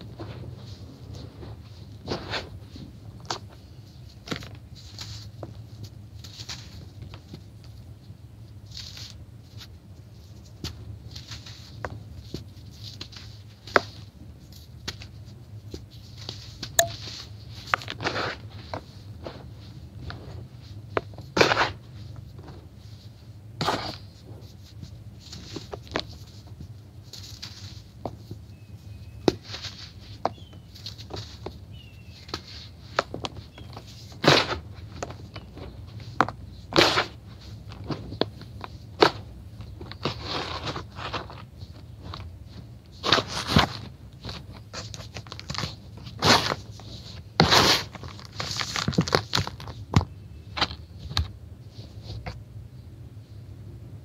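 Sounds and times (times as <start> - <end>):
hands crushing crispy blocks: 43.0 - 51.3.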